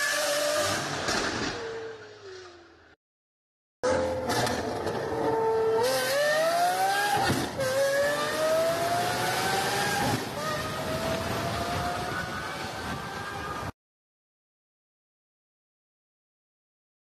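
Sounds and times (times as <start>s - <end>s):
car engine accelerating hard: 3.8s - 12.4s.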